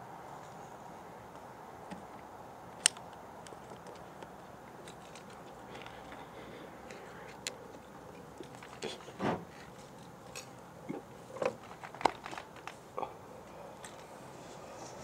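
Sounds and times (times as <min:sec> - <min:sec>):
small clicks and crackles: 0:01.9 - 0:10.6, 0:11.3 - 0:12.9.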